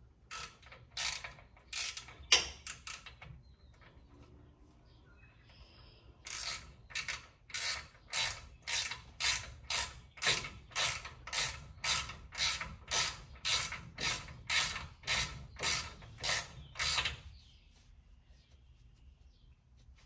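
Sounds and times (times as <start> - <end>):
hand ratchet clicking: 0.3 - 3.2, 6.3 - 17.2.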